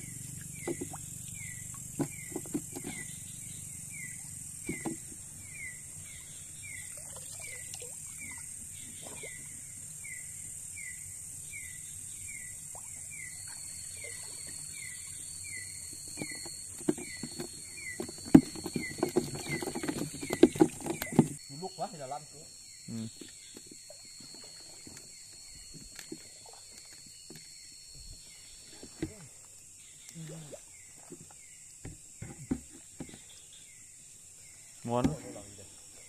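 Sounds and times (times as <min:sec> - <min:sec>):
insect high-pitched drone: 0:00.0 - 0:36.0
knocks and splashing in water: 0:00.4 - 0:01.1, 0:01.7 - 0:03.2, 0:04.6 - 0:05.2, 0:16.0 - 0:21.4.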